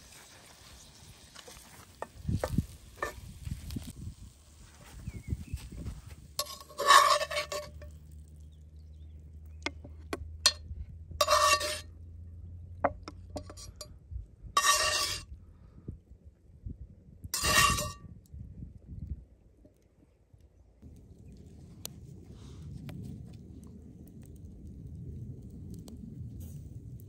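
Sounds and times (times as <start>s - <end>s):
metal spoon scraping wok: 2.0s - 3.3s, 6.4s - 8.0s, 11.2s - 11.9s, 13.4s - 13.9s, 14.6s - 15.3s, 17.4s - 18.0s.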